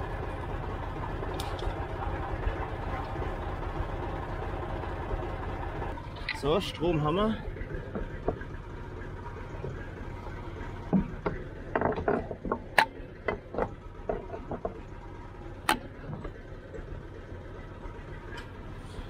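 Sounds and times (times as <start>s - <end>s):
tractor engine idling: 0.0s - 19.0s
sharp clicks and knocks: 7.6s - 8.5s, 10.9s - 14.9s, 15.6s - 16.4s.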